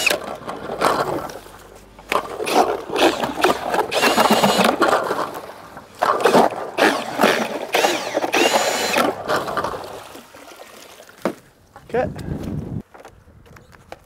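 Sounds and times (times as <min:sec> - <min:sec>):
cordless drill motor whining: 0:00.0 - 0:00.2, 0:03.0 - 0:04.8, 0:06.8 - 0:09.2
auger scraping ice and slush: 0:00.0 - 0:10.9.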